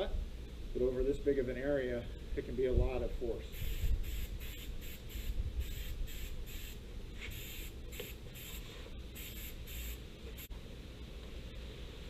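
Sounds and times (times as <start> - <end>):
aerosol spray bursts: 3.5 - 10.5.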